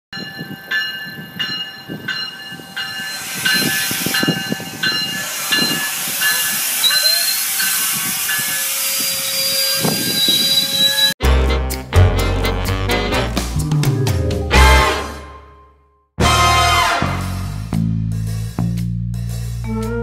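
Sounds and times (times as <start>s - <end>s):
bell dinging: 0.2s - 7.8s
train rumbling and hissing: 0.2s - 11.2s
rising squeal: 2.8s - 11.2s.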